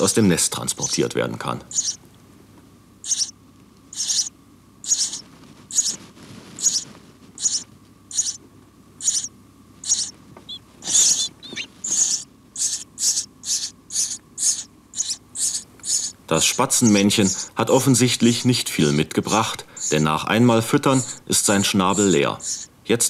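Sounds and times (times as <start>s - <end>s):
sparrows chirping: 0.0s - 2.0s, 3.0s - 8.4s, 9.0s - 23.0s.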